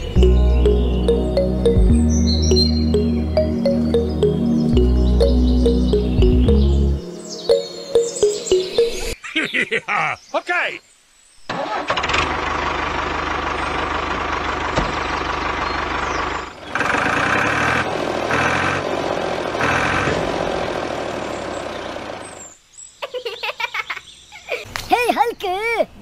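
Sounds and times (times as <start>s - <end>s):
tractor engine running: 11.5s - 22.4s.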